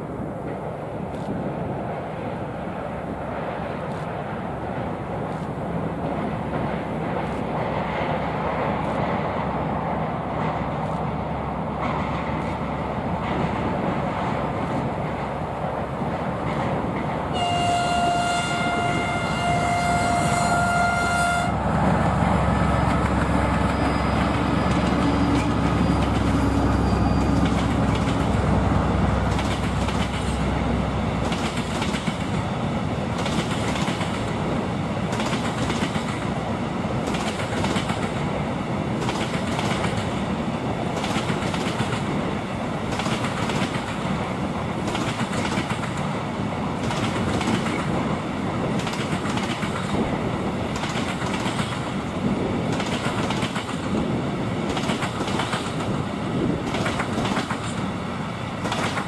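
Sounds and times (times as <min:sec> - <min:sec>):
locomotive horn blast: 0:17.3 - 0:21.6.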